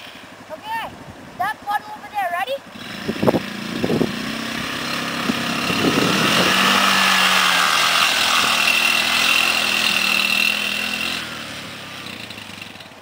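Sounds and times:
quad bike engine passing: 2.6s - 13.0s.

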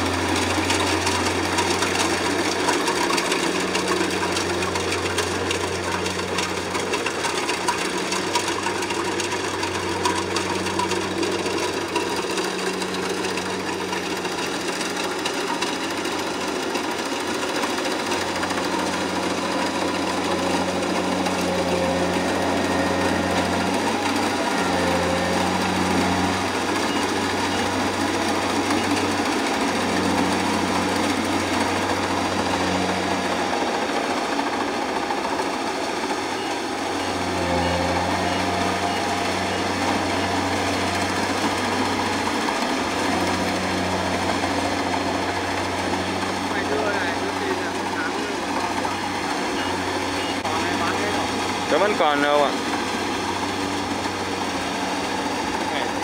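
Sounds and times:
combine harvester engine drone: 0.0s - 56.0s.

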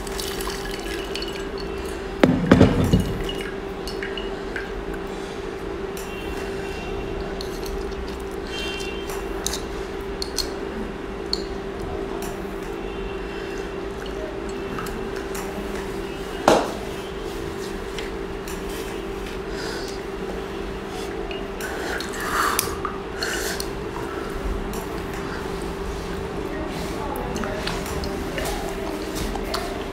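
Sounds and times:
sharp knock: 2.2s - 3.2s
wet squishes: 21.0s - 29.9s.

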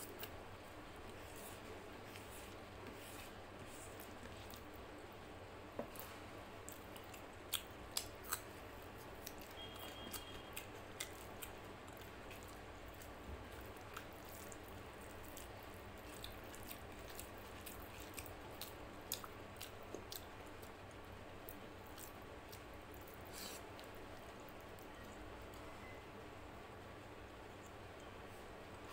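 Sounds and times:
chewing: 3.7s - 4.8s, 5.9s - 25.7s.

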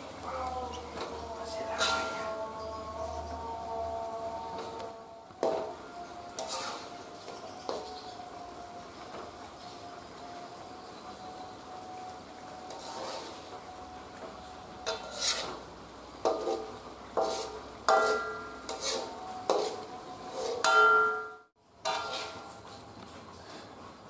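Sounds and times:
faint simmering: 0.0s - 24.0s
metal spatula scraping a wok: 1.5s - 3.4s, 5.4s - 8.0s, 12.6s - 13.6s, 14.8s - 22.8s
ringing metallic clangs: 20.6s - 21.5s.

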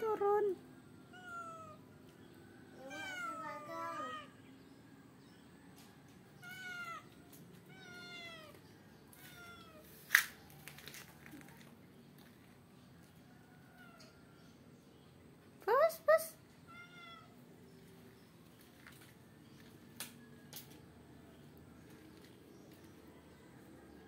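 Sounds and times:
cat meowing: 1.1s - 1.9s, 2.8s - 4.3s, 6.4s - 9.9s, 16.7s - 17.4s.

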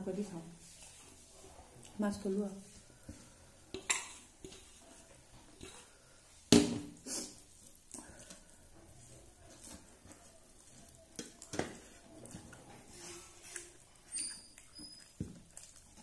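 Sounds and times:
rice mixed by hand on metal plate: 0.2s - 13.8s.

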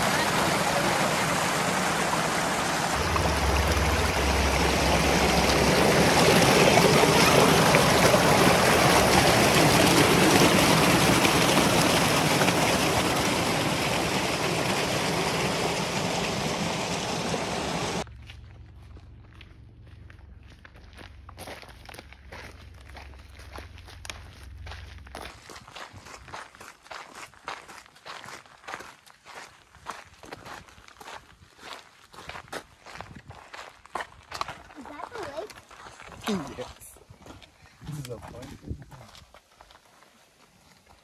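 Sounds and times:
running water rushing: 0.0s - 18.0s.

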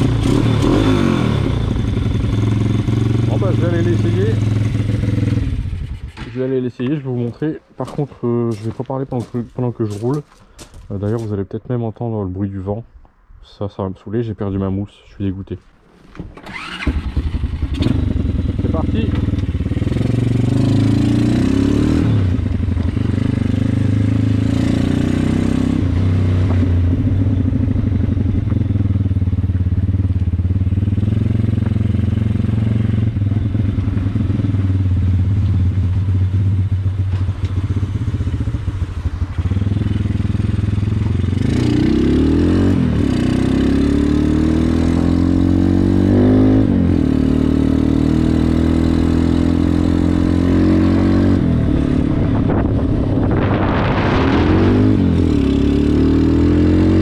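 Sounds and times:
motorcycle engine revving: 0.0s - 6.6s, 16.4s - 57.0s.

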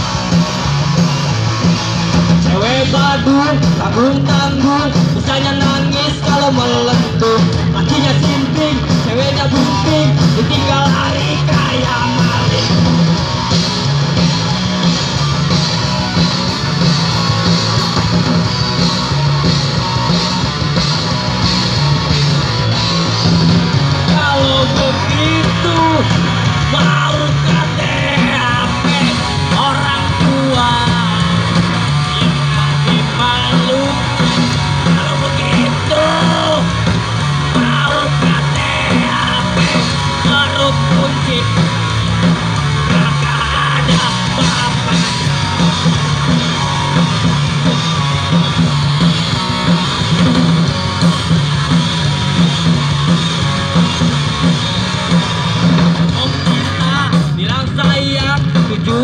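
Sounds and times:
grunge band playing: 0.0s - 59.0s.

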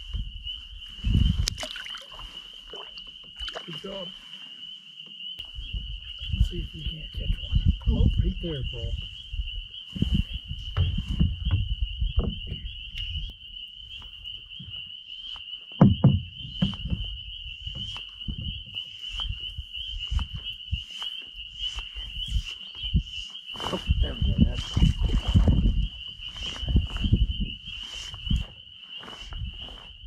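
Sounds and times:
high-pitched insect trill: 0.0s - 30.0s
low knocks and rumbles: 10.5s - 13.2s, 15.8s - 18.8s.

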